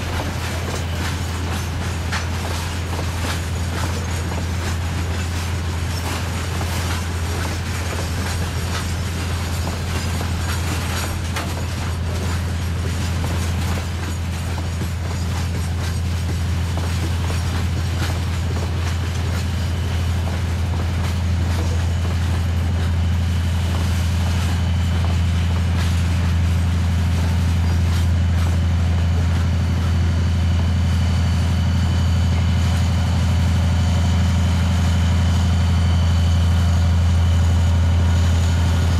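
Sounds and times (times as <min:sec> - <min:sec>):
wheels clattering over rail joints: 0:00.0 - 0:30.0
diesel locomotive engine drone: 0:00.0 - 0:38.9.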